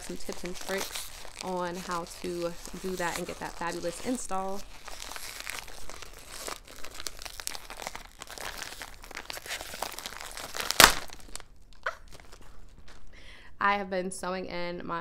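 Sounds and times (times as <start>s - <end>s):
plastic bag snapping: 0.0s - 13.0s
plastic bag crinkling: 0.0s - 13.2s.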